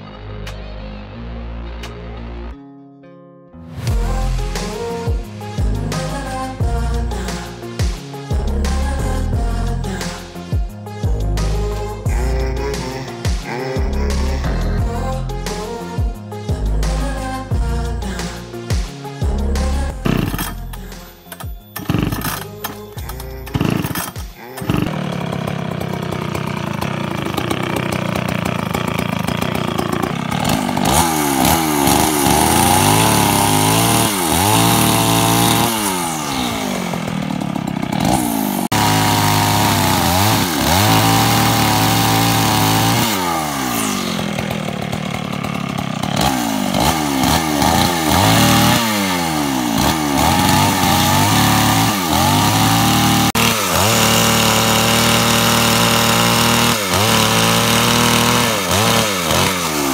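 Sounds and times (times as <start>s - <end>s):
chainsaw idling and revving: 3.8s - 59.9s
chainsaw pull-start cord: 19.9s - 59.9s.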